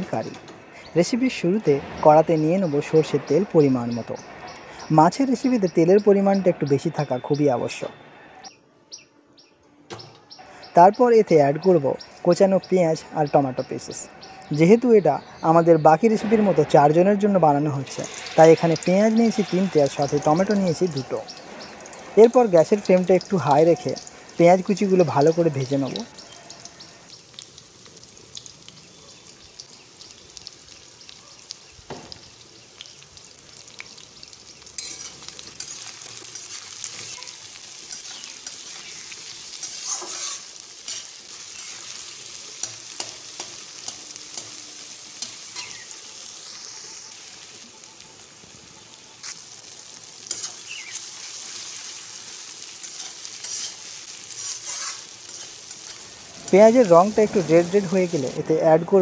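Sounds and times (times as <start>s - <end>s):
onions sizzling in oil: 0.0s - 7.9s, 10.5s - 59.0s
spatula scraping metal pan: 34.8s - 35.8s, 39.6s - 41.2s, 52.9s - 55.6s.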